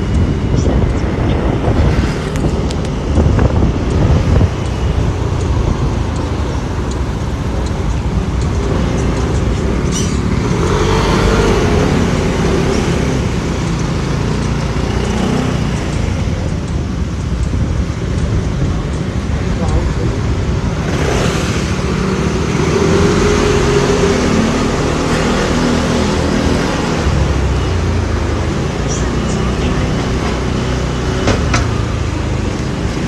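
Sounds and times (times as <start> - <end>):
motorbike and scooter engines: 0.0 - 33.0
road and traffic noise: 0.0 - 33.0.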